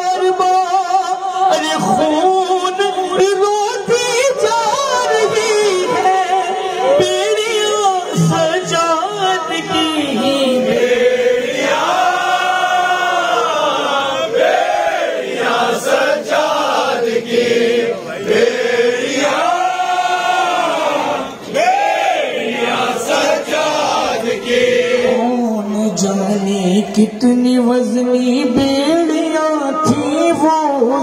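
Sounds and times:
man singing a lament into a microphone: 0:00.0 - 0:11.1
crowd chanting in chorus: 0:09.7 - 0:27.2.

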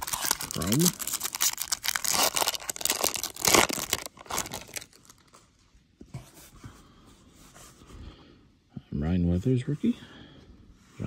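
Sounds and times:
foil wrapper ripping: 0:00.0 - 0:05.3
foil wrapper crinkling: 0:00.0 - 0:05.4.

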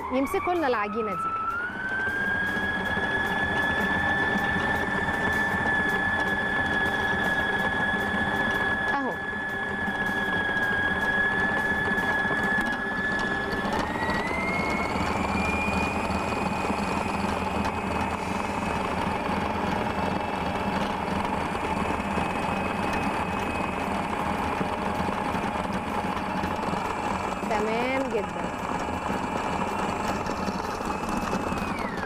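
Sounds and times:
stand mixer motor whining: 0:00.0 - 0:32.0.

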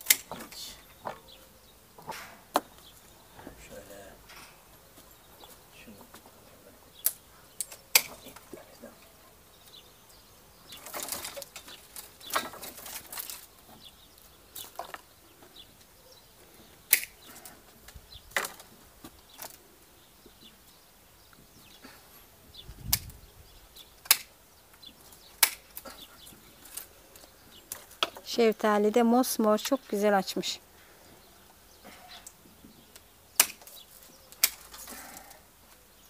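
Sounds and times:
pruning shears snipping: 0:00.0 - 0:00.7, 0:07.0 - 0:08.5, 0:16.9 - 0:17.3, 0:24.0 - 0:24.4, 0:25.1 - 0:28.2, 0:32.2 - 0:35.0
vine branches rustling: 0:00.0 - 0:36.0.

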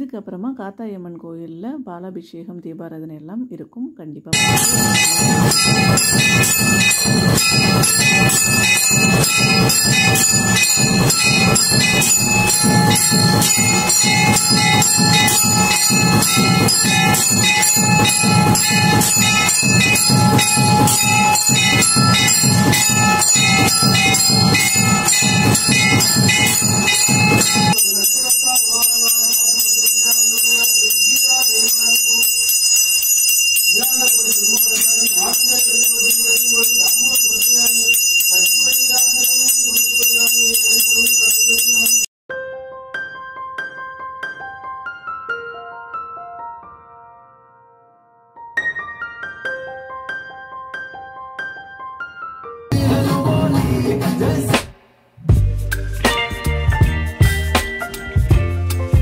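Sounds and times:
bells clanging: 0:04.4 - 0:42.1
dense low beat: 0:55.3 - 0:56.1.

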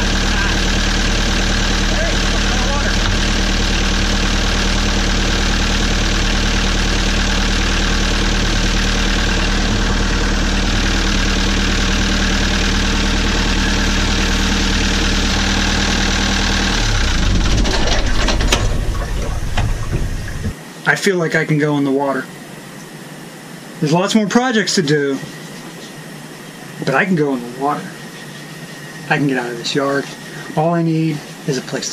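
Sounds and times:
diesel engine idling: 0:00.0 - 0:20.6.

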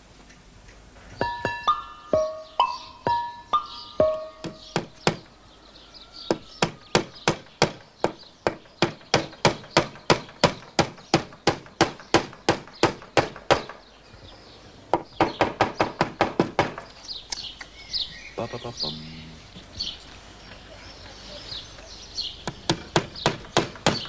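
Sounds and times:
hammer striking nails into wood: 0:04.0 - 0:05.3, 0:06.3 - 0:13.8, 0:14.9 - 0:16.9, 0:22.4 - 0:24.0.

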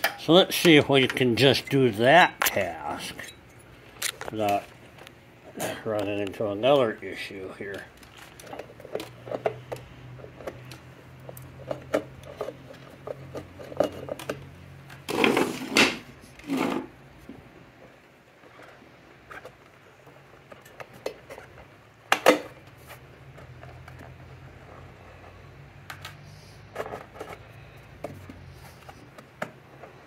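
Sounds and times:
clattering rustle: 0:11.5 - 0:17.0.

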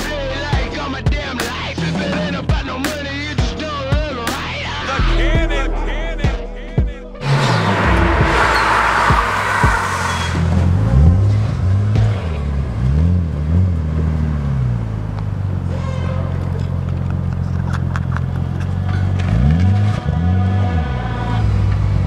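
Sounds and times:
car engine revving: 0:04.9 - 0:22.0.

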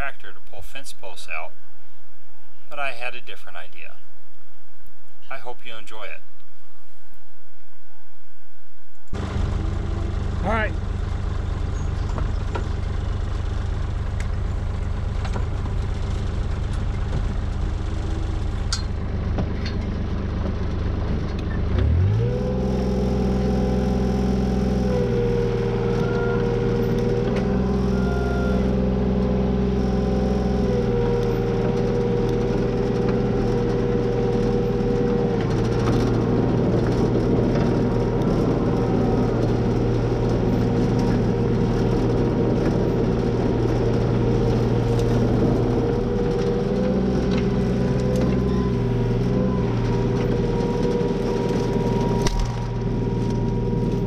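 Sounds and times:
excavator diesel engine running: 0:09.1 - 0:54.0.

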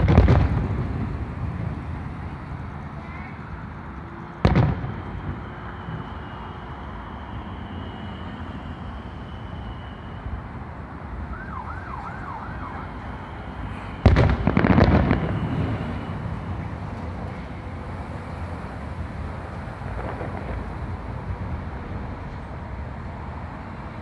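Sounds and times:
firework bang: 0:00.0 - 0:02.0, 0:04.4 - 0:06.5, 0:13.8 - 0:16.6, 0:19.8 - 0:21.3
firework crackling pops: 0:00.0 - 0:02.4, 0:04.4 - 0:06.5, 0:13.9 - 0:16.4, 0:19.4 - 0:21.8
city traffic: 0:00.0 - 0:24.0
faint siren: 0:00.0 - 0:24.0.

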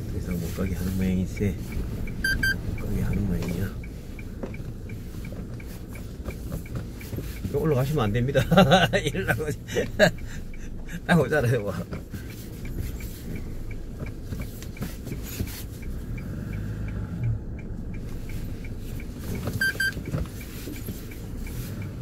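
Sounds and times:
car engine low rumble: 0:00.0 - 0:22.0
faint regular ticking: 0:00.0 - 0:22.0
electronic double beep: 0:02.2 - 0:02.6.

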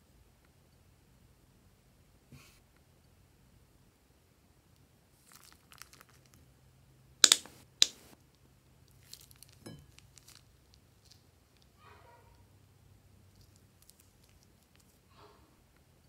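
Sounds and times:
plastic piping bag crinkling: 0:05.2 - 0:06.4, 0:08.9 - 0:11.7, 0:13.3 - 0:15.0.

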